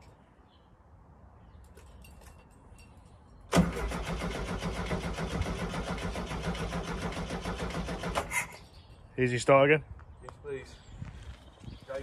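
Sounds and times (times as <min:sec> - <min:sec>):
engine cranking on starter motor: 0:03.5 - 0:08.5.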